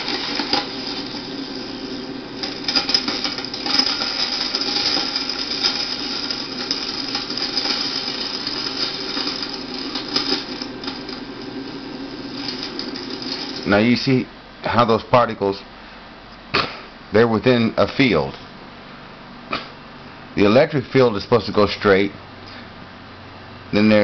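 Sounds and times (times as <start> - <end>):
crackling hiss with clicks: 0.0 - 14.3
faint hum: 0.0 - 24.0.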